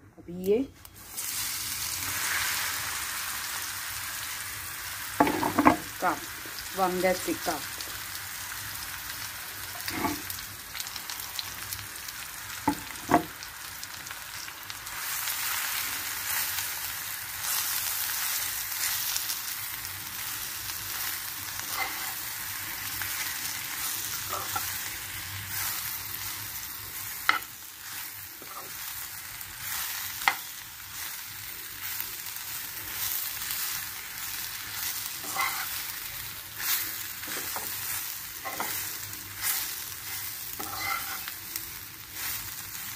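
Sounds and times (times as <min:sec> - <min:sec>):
slices sizzling in oil: 0:00.3 - 0:42.9
metal spoon scraping a pan: 0:09.8 - 0:10.3, 0:21.6 - 0:22.2, 0:35.2 - 0:35.8, 0:38.4 - 0:39.6, 0:40.5 - 0:41.4.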